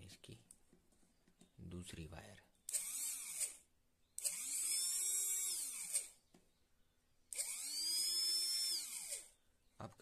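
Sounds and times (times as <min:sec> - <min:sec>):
electric motor whining: 0:04.2 - 0:06.2, 0:07.3 - 0:09.3.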